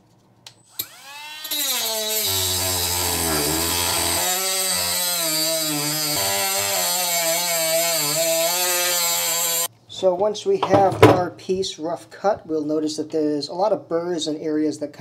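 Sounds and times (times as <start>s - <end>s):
rotary tool whining: 0.7s - 9.7s.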